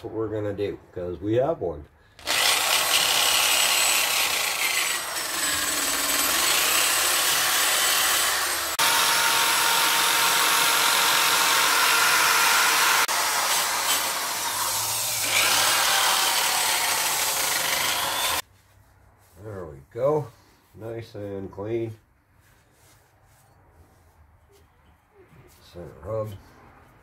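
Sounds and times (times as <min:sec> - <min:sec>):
drill motor whine: 0:02.2 - 0:18.4.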